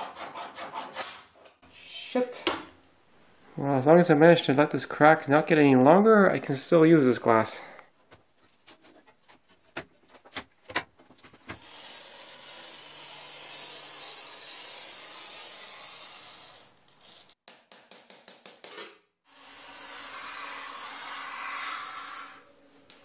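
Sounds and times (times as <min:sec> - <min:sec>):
glass cutter scoring glass: 0:11.6 - 0:17.4, 0:19.3 - 0:23.0.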